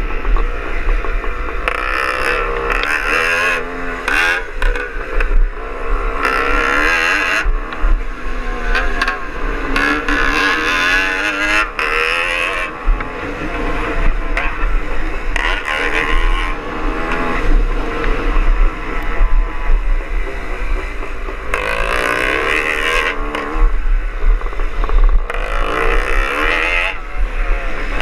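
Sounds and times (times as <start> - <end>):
motorcycle engine revving: 0.0 - 28.0
second motorcycle engine: 0.0 - 28.0.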